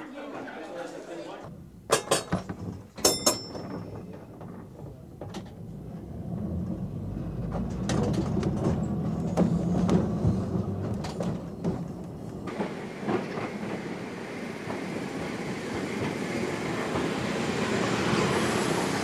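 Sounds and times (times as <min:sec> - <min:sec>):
clicks and knocks from wheels: 0:01.9 - 0:13.5
tram humming: 0:03.1 - 0:19.0.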